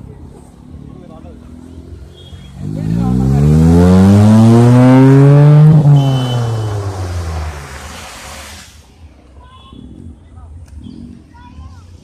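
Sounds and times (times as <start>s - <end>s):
car accelerating past: 1.6s - 8.6s.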